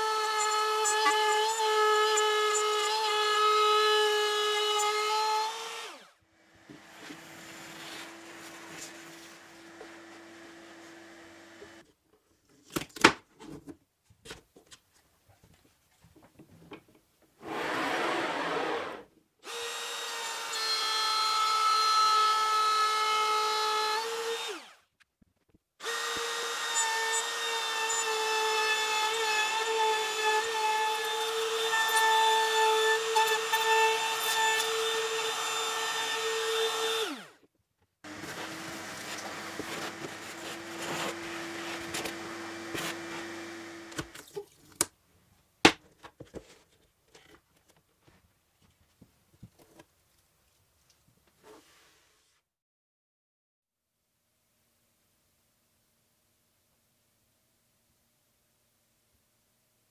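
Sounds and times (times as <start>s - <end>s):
vacuum hose humming: 38.1s - 44.1s.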